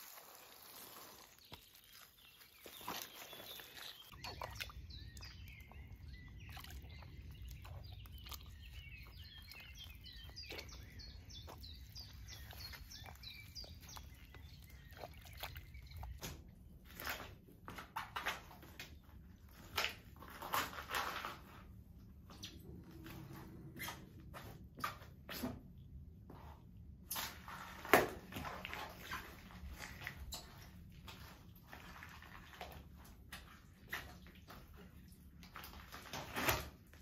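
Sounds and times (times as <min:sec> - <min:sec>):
sneakers crushing soft fruit: 0:00.0 - 0:17.4
feet treading in wet mud: 0:00.0 - 0:18.4, 0:27.4 - 0:36.3
birds chirping: 0:00.1 - 0:17.4.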